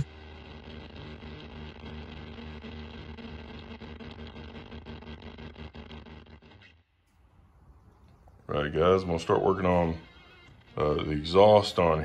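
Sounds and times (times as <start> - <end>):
static-like crackling: 0.0 - 6.7.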